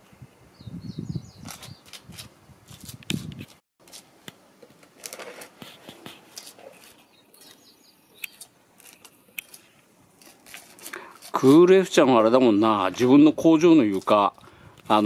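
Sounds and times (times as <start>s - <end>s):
spatula scraping mortar on concrete: 10.2s - 13.1s.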